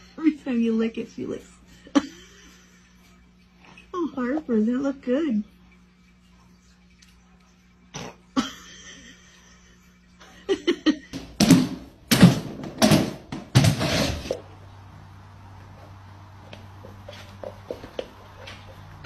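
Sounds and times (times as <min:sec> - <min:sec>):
woman laughing: 0:01.7 - 0:03.0, 0:08.4 - 0:11.2.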